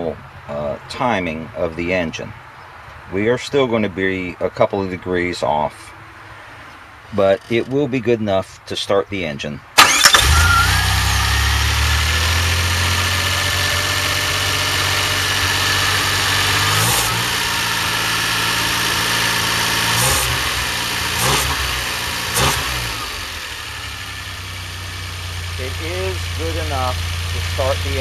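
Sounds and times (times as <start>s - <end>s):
car engine idling: 9.8s - 28.0s.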